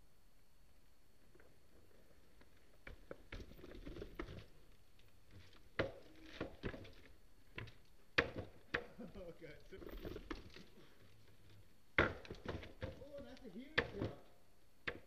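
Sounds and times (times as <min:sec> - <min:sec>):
bike tyres knocking on wooden planks: 0:02.4 - 0:04.7, 0:05.3 - 0:09.2, 0:09.9 - 0:15.0.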